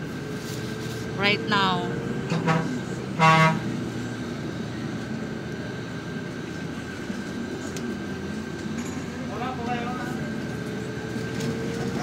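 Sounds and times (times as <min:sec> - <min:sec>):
bus engine and road noise: 0:00.0 - 0:12.0.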